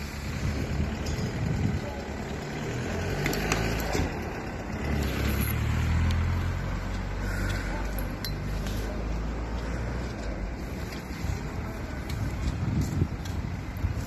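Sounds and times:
road traffic rumble: 0:00.0 - 0:14.0
car driving past: 0:02.4 - 0:10.1.

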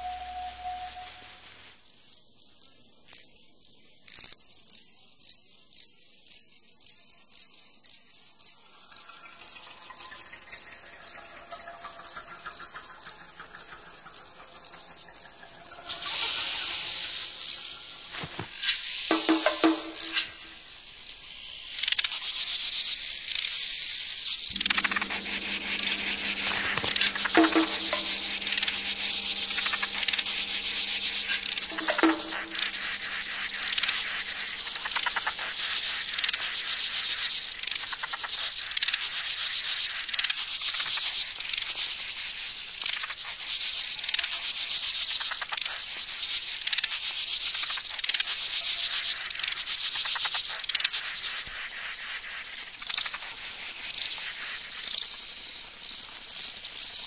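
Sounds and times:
brief low tones: 0:00.0 - 0:01.4
insect chorus: 0:00.0 - 0:57.0.

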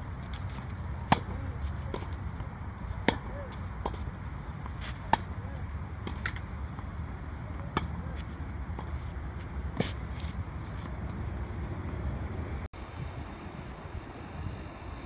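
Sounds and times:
tennis ball bouncing: 0:00.3 - 0:05.4, 0:06.0 - 0:07.0
tennis ball hit by rackets: 0:00.4 - 0:04.0, 0:04.6 - 0:05.4, 0:06.0 - 0:06.9.

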